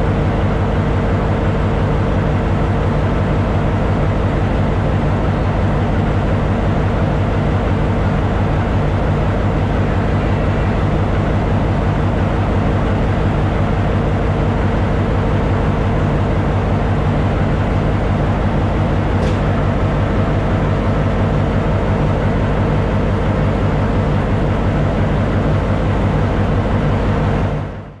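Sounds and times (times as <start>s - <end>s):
diesel locomotive engine idling: 0.0s - 28.0s.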